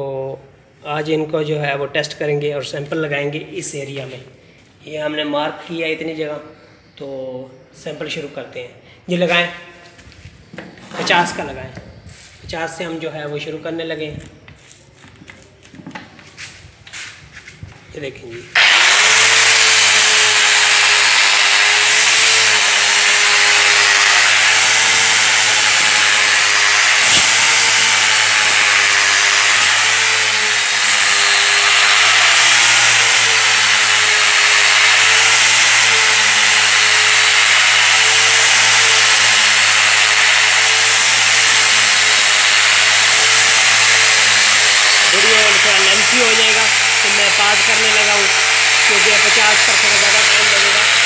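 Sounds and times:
angle grinder motor whine: 18.5 - 51.0.

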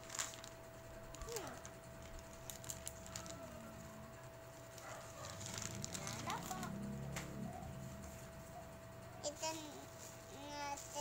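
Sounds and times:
plastic pouch crinkling: 0.0 - 4.0, 4.6 - 6.7.

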